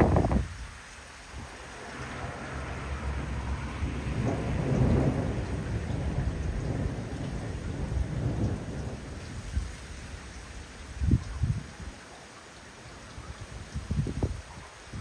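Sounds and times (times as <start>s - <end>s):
rain falling: 0.0s - 15.0s
thunder rumbling: 1.4s - 12.0s.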